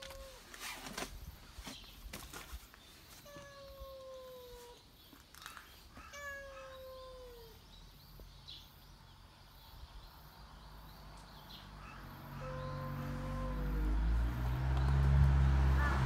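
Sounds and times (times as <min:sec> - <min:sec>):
cat meowing: 0:06.0 - 0:07.6, 0:12.4 - 0:14.0.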